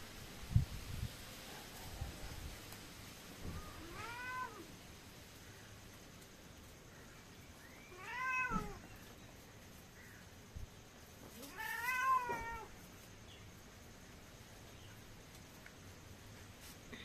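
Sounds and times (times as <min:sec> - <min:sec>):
cat meowing: 0:03.4 - 0:04.7, 0:07.9 - 0:08.9, 0:11.4 - 0:12.8.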